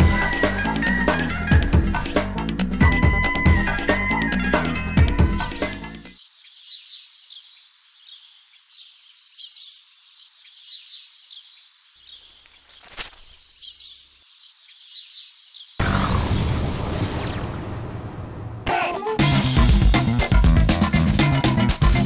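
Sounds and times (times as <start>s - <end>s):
bird chirps: 5.9s - 16.0s
steady outdoor hiss: 6.0s - 15.8s.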